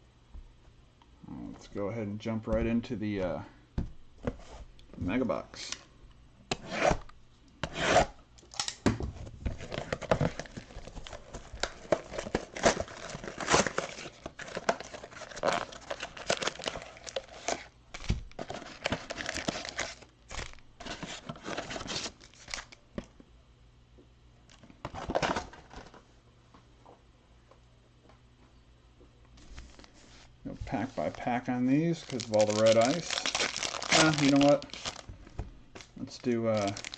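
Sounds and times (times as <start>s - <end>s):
cardboard and wrapping tearing: 9.6s - 22.8s, 32.0s - 35.1s, 36.1s - 36.9s.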